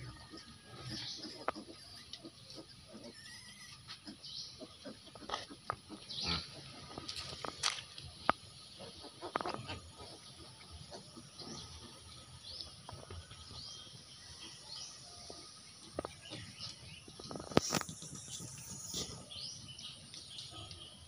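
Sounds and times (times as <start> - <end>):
bird chirps: 10.9 - 21.0.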